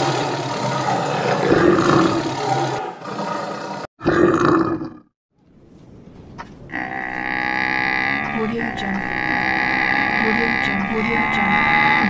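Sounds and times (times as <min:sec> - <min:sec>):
animal roar: 0:00.0 - 0:05.1, 0:06.7 - 0:12.0
faint building sound: 0:05.3 - 0:11.7.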